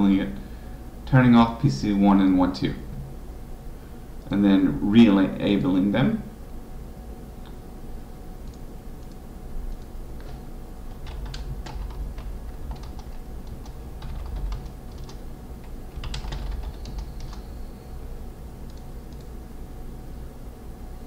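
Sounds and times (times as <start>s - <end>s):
low steady hum: 0.0s - 21.0s
keyboard typing: 8.4s - 17.6s, 18.7s - 19.4s.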